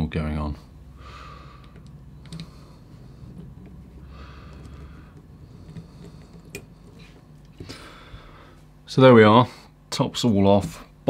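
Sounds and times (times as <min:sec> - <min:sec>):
small parts clicking and tapping: 0:01.6 - 0:02.6, 0:03.3 - 0:07.8.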